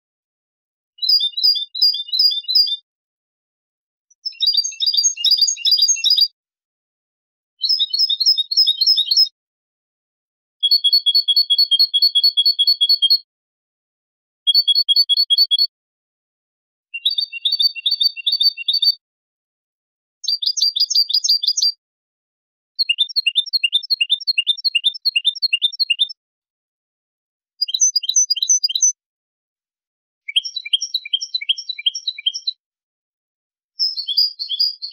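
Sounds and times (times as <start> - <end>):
goldfinch singing: 4.2 - 6.3, 7.6 - 9.3, 20.2 - 21.7, 22.8 - 26.1, 27.6 - 28.9, 33.8 - 34.9.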